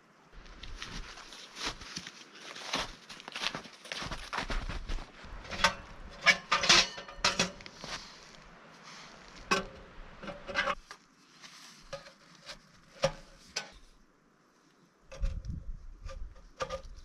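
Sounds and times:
metal stovepipe clanking: 5.4s - 7.7s, 9.5s - 10.8s.

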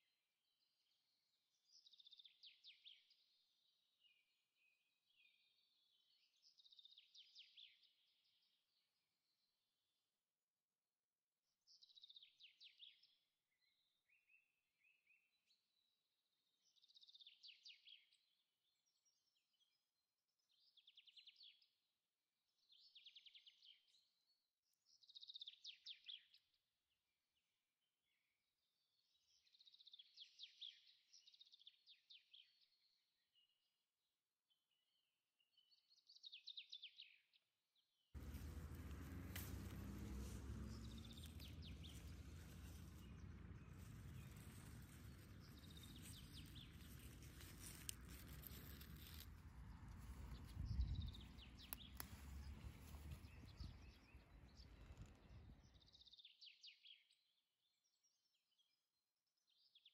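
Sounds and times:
small birds chirping: 29.0s - 33.0s, 38.2s - 58.7s.

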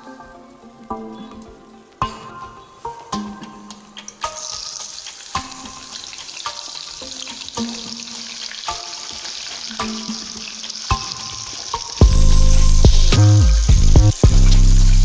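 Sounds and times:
onions sizzling in hot oil: 2.6s - 15.0s.

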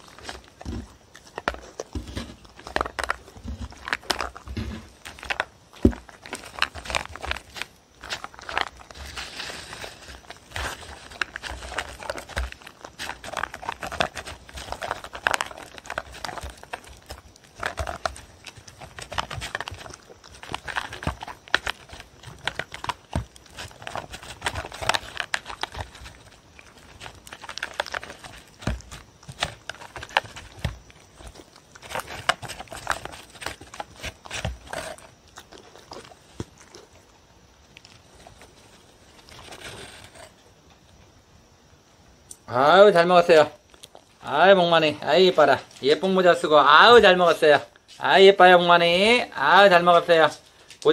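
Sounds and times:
paper bowl crinkling: 0.0s - 37.0s, 37.7s - 40.3s
dog crunching dry kibble: 0.0s - 40.4s, 43.0s - 50.9s.

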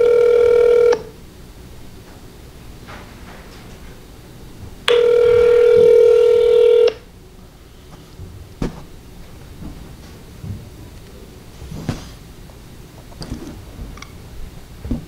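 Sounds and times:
telephone ringback tone: 0.0s - 1.1s, 4.9s - 7.0s.

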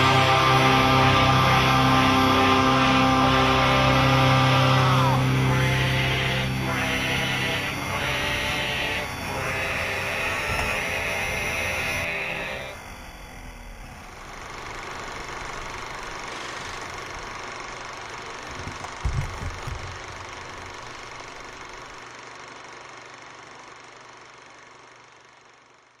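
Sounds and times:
two-stroke moped engines running: 0.0s - 25.5s.

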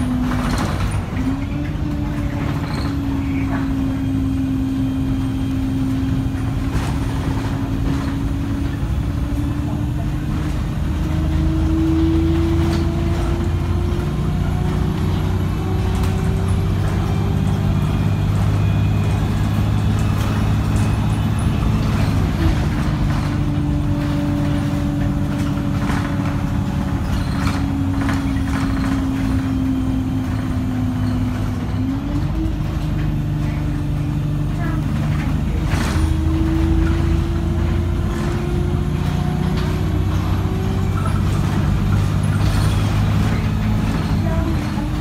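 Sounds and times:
bus engine drone with whine: 0.0s - 45.0s.

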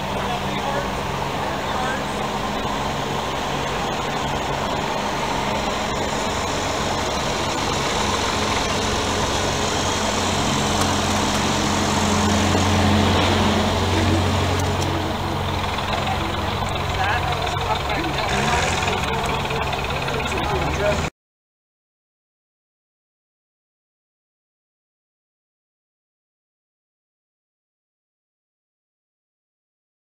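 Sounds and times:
truck engine idling: 0.0s - 21.1s.

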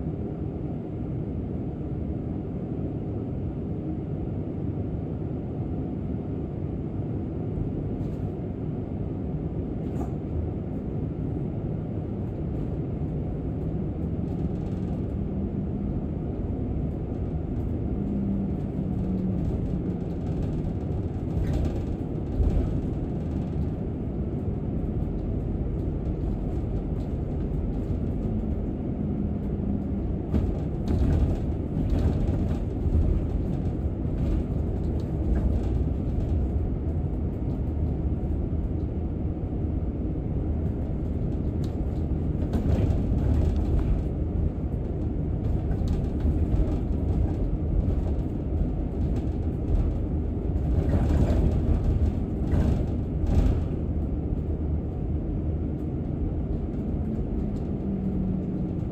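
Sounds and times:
bus engine and road rumble: 0.0s - 58.9s
rattles and clatters: 12.3s - 39.0s, 40.6s - 58.9s.

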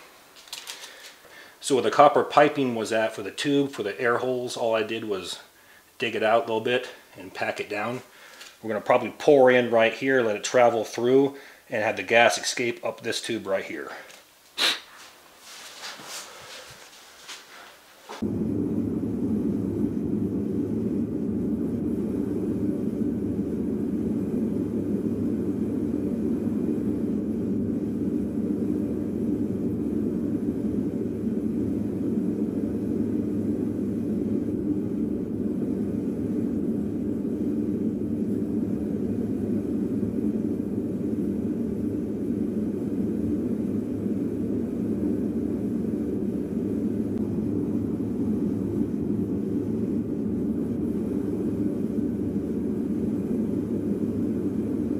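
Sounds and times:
gas burner rushing: 18.2s - 54.9s.

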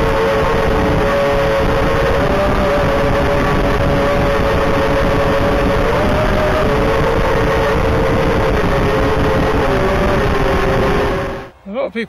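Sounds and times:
drone motors whining: 0.0s - 11.8s.

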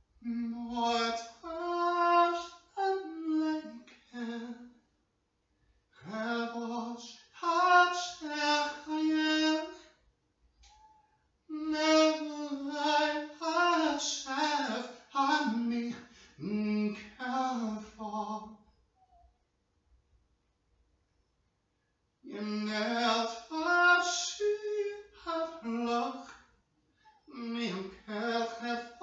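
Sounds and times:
man singing unaccompanied: 0.2s - 4.8s, 6.0s - 10.0s, 11.5s - 18.6s, 22.2s - 26.5s, 27.3s - 29.0s.

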